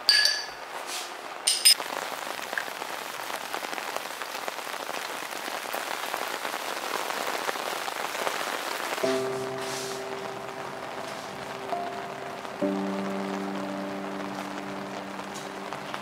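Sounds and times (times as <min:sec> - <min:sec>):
spoon clinking against bowl: 0:00.0 - 0:00.6, 0:01.5 - 0:01.8
steady rain: 0:00.0 - 0:16.0.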